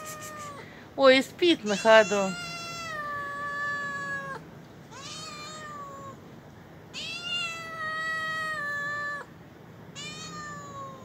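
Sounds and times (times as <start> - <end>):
cat meowing: 0.0 - 0.6, 1.6 - 6.2, 6.9 - 9.3, 10.0 - 11.0.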